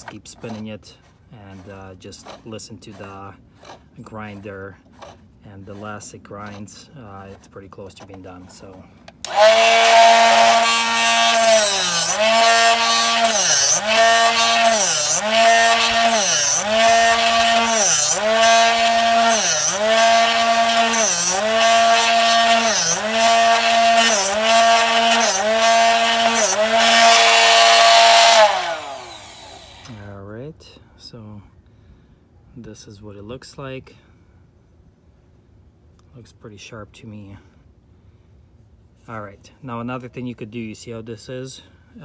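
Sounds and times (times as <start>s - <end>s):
drill bit grinding hiss: 9.2s - 29.9s
drill bit sharpener motor humming: 9.2s - 29.9s.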